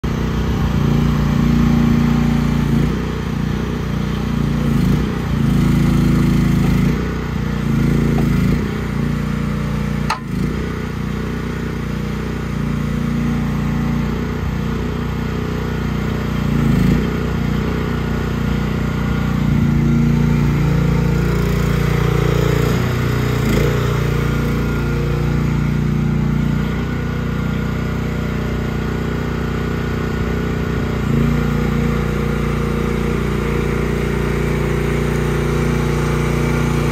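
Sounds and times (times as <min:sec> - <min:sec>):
excavator engine running: 0:00.0 - 0:36.9
sharp click: 0:10.1 - 0:10.4.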